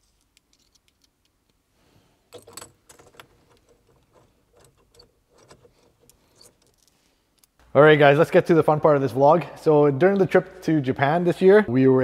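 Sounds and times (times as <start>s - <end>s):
small metal parts jingling: 2.3s - 7.6s.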